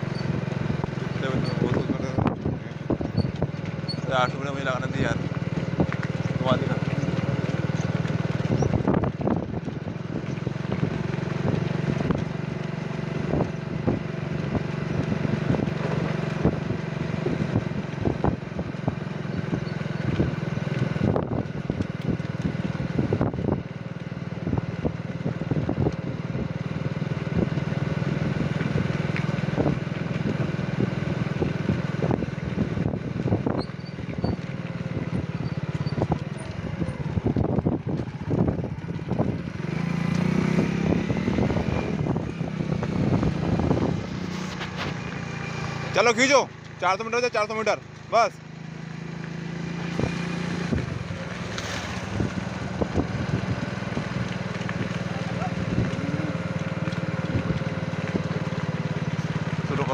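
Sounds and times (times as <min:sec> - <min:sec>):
motorcycle engine running: 0:00.0 - 0:59.9
wind rushing over microphone: 0:08.4 - 0:12.2, 0:36.0 - 0:45.2, 0:51.9 - 0:54.2.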